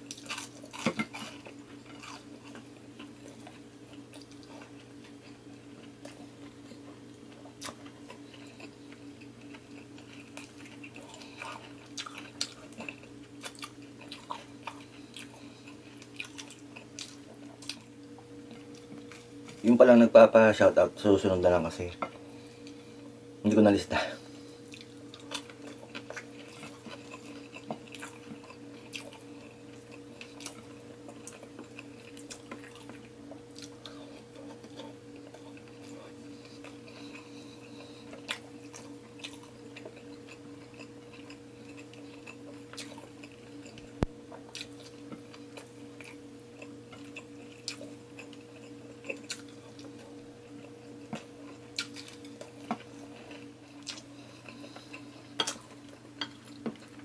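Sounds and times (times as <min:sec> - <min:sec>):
close chewing and mouth sounds: 0:00.0 - 0:19.8, 0:24.3 - 0:57.0
steady low hum: 0:00.0 - 0:57.0.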